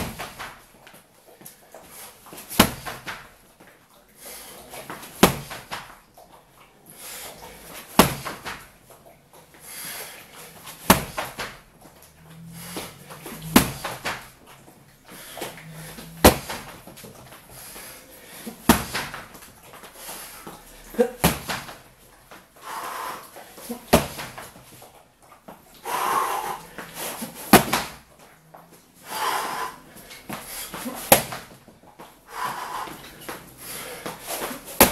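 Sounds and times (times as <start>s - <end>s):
kicks slapping punching dummy: 0.0s - 0.6s, 2.4s - 3.3s, 5.0s - 6.0s, 8.0s - 8.7s, 10.8s - 11.6s, 13.4s - 14.3s, 16.2s - 17.0s, 18.5s - 19.4s, 21.2s - 21.9s, 23.8s - 24.6s, 27.5s - 28.0s, 31.0s - 31.6s, 34.7s - 34.9s
forceful breath: 12.2s - 14.3s, 15.0s - 16.8s, 22.6s - 23.8s, 25.8s - 27.9s, 29.0s - 31.2s, 32.3s - 34.9s.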